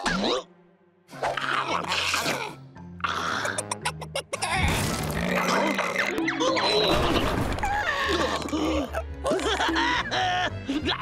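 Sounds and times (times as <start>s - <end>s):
cartoon background music: 0.0s - 11.0s.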